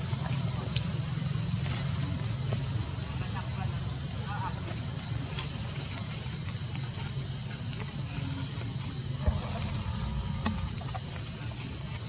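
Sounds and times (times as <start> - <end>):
insects droning: 0.0 - 12.0
low rumble: 9.1 - 11.4.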